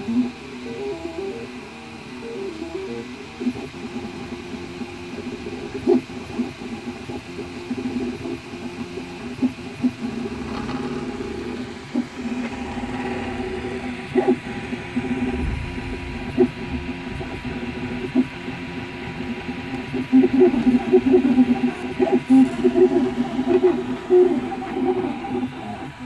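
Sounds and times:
printer stepper motor whine: 0:00.0 - 0:26.0.

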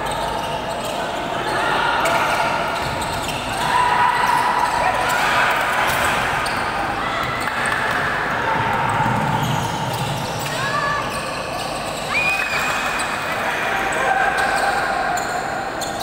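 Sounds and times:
sneakers squeaking on court: 0:00.0 - 0:03.6, 0:09.0 - 0:13.2.

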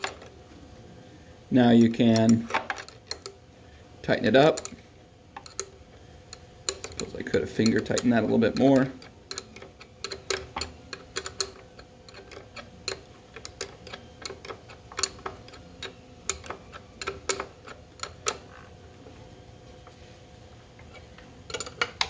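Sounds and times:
wrench clicking on bolt: 0:01.8 - 0:03.4, 0:05.4 - 0:18.6.

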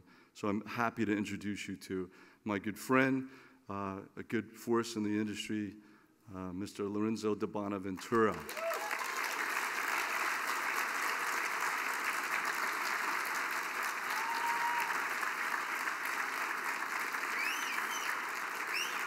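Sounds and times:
audience applauding: 0:08.1 - 0:19.0.

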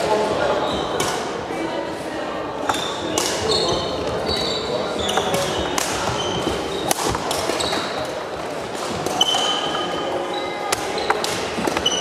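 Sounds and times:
shoes squeaking on wooden floor: 0:02.7 - 0:12.0.

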